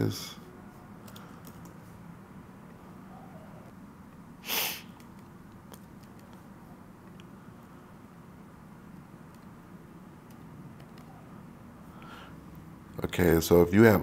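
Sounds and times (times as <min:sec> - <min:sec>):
low room hum: 0:00.0 - 0:14.0
keyboard typing clicks: 0:01.0 - 0:01.8, 0:05.0 - 0:06.4, 0:10.2 - 0:11.1
breath into microphone: 0:11.9 - 0:12.4.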